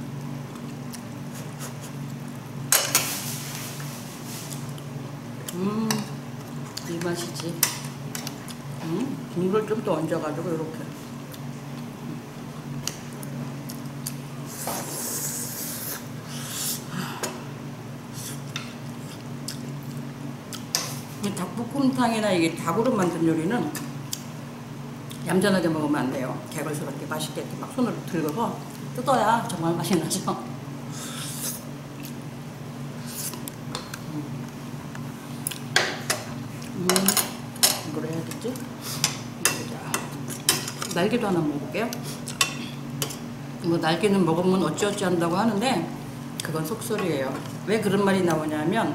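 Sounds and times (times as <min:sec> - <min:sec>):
low room hum: 0:00.0 - 0:48.9
utensils clinking against bowls: 0:35.8 - 0:38.4.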